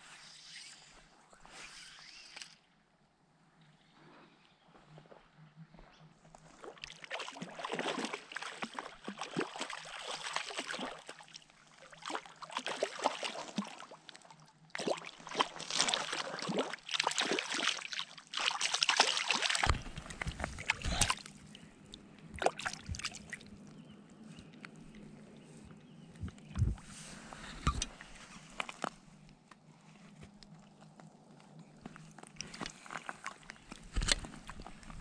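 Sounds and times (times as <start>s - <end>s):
water splashing and sloshing: 6.4s - 23.8s, 24.4s - 29.1s, 29.9s - 35.0s
deep rumble on microphone: 25.1s - 27.9s.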